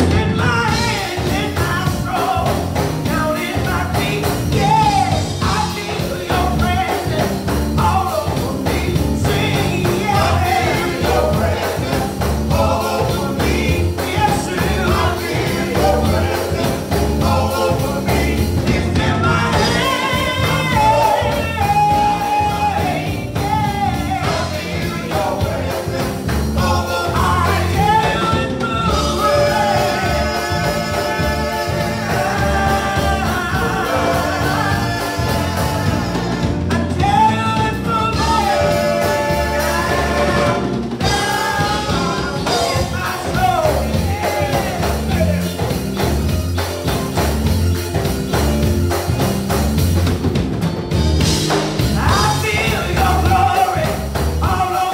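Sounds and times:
group singing gospel: 0.0 - 54.9
instrumental accompaniment with beat: 0.0 - 54.9.

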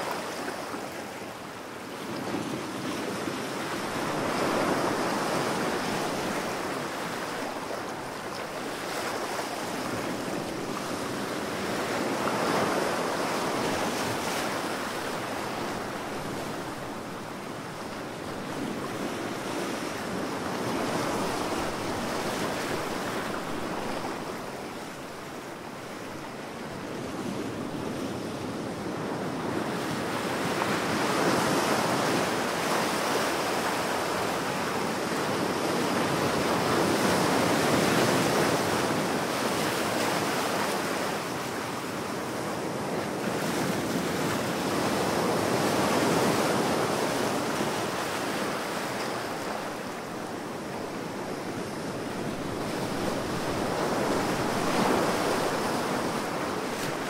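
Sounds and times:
ocean waves breaking: 29.0 - 57.0.

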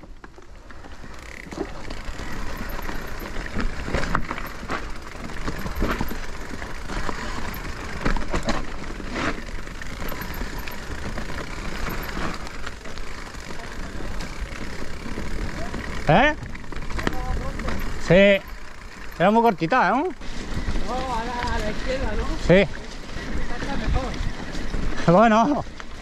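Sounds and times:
bike knocks and rattles: 0.0 - 22.1
bike tyres rolling on trail: 0.0 - 26.0.

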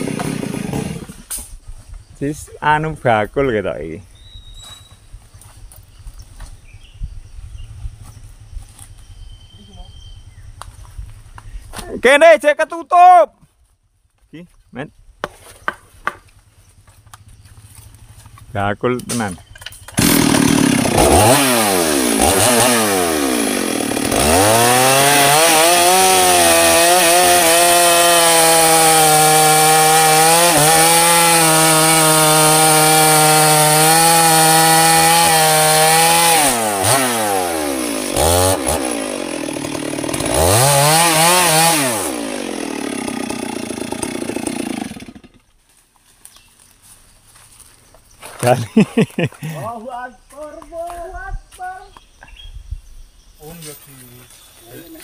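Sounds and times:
chainsaw revving and cutting wood: 0.0 - 1.4, 17.6 - 45.6, 48.4 - 49.7.

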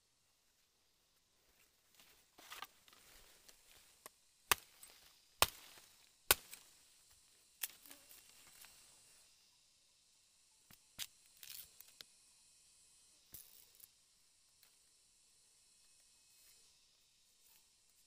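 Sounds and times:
machete chopping wooden stick: 4.5 - 6.7.

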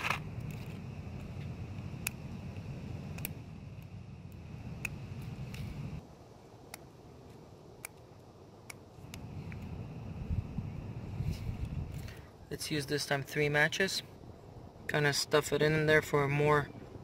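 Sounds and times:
small clicks and scrapes: 0.0 - 2.2
low background rumble: 0.0 - 6.4, 7.8 - 12.6.

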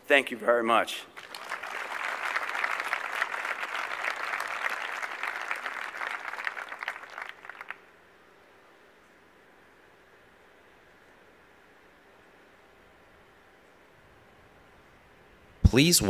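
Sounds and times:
audience applauding: 1.2 - 7.9.

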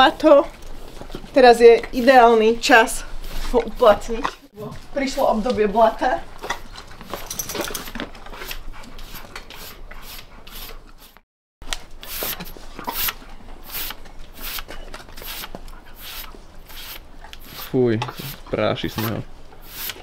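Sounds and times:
metal comb rasping on horse coat: 7.1 - 11.2, 12.2 - 20.0.

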